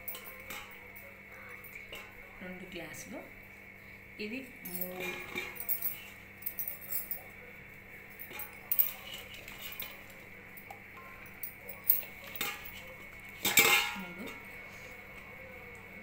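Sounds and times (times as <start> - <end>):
glass clinking against steel: 0.0 - 2.2, 4.7 - 7.4, 8.1 - 14.5.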